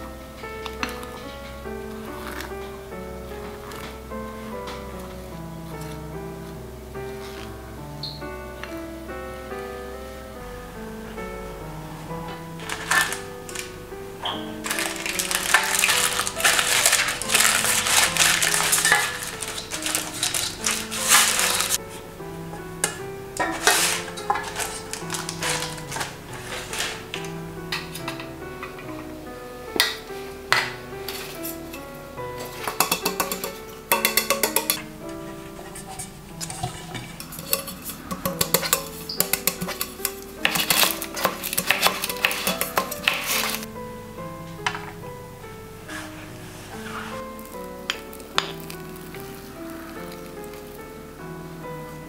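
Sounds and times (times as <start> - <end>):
soft background music: 0.0 - 52.0
crumpled paper rustling: 12.4 - 13.8, 14.4 - 22.0, 22.8 - 28.3, 31.0 - 31.7, 35.1 - 43.7, 45.9 - 50.9
metal tin clinking knocks: 32.4 - 34.8.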